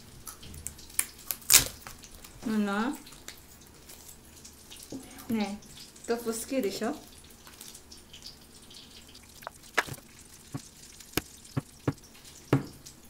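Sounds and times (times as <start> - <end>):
knife tapping on cutting board: 11.6 - 12.0.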